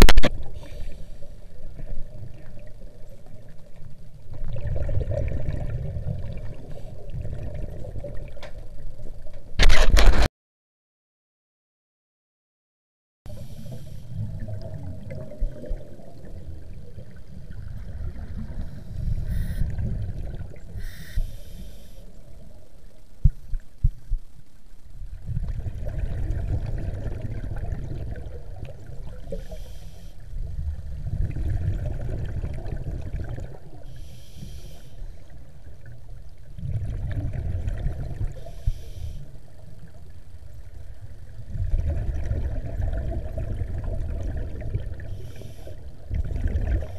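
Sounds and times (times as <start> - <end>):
regulator hiss on inhale: 0.5 - 1.5, 13.3 - 14.2, 18.6 - 19.8, 20.8 - 22.2, 29.3 - 30.4, 33.8 - 35.3, 38.3 - 39.5, 45.0 - 46.0
exhaled bubbles rumbling: 1.5 - 9.4, 13.6 - 21.0, 22.1 - 29.6, 30.2 - 33.9, 35.2 - 46.9.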